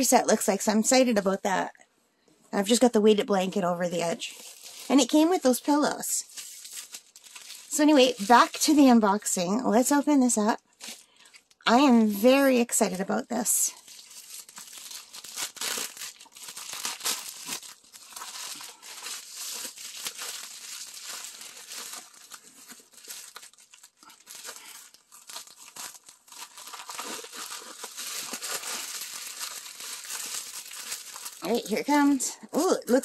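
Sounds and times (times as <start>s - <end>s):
bubble mailer tearing and crinkling: 4.1s - 10.0s, 10.7s - 11.6s, 13.7s - 32.2s.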